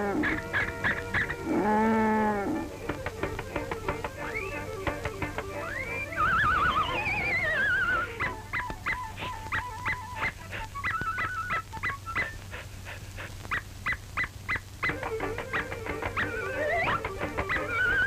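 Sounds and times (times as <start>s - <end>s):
cartoon soundtrack music: 0.1s - 10.1s, 14.9s - 18.0s
falling whistle glide: 5.6s - 12.2s, 14.9s - 18.0s.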